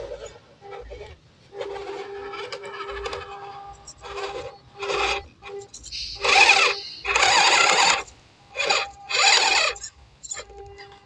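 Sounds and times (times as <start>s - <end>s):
electric motor whining in bursts: 2.9s - 9.9s.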